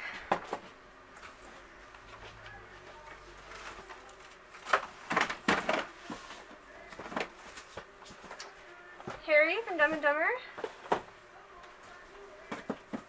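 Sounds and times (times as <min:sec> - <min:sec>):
rummaging in cardboard box: 0:03.3 - 0:11.1.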